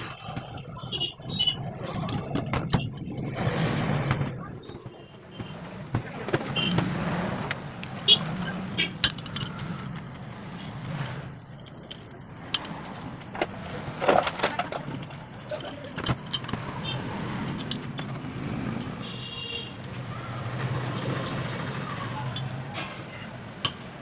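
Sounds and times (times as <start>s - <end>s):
metal parts clinking and knocking: 0.3s - 3.4s, 7.8s - 20.0s.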